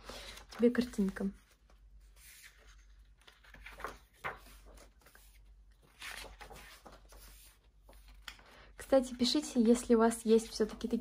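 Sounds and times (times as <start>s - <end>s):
paper pages turning: 0.1s - 8.5s.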